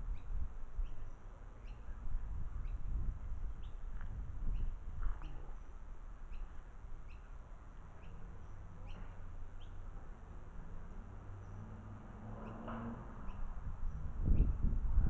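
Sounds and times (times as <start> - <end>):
bird chirping: 0.1 - 2.0, 4.5 - 9.9.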